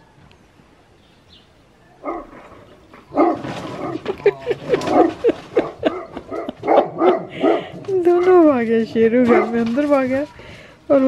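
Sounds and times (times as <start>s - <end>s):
large dog barking: 2.0s - 7.9s, 8.9s - 9.9s.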